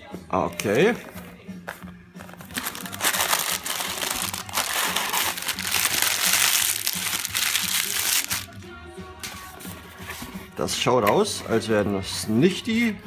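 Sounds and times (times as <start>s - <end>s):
tissue paper rustling and crumpling: 1.0s - 8.6s.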